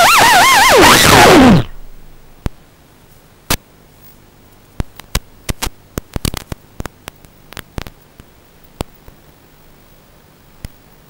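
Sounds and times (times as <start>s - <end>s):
faint low hum: 0.0s - 11.0s.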